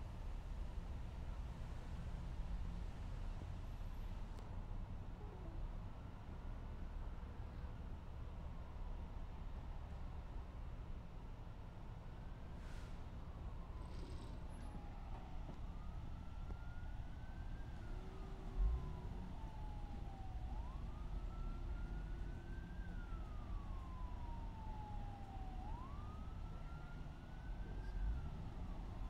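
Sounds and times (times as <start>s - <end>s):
emergency siren wailing: 13.2s - 29.0s.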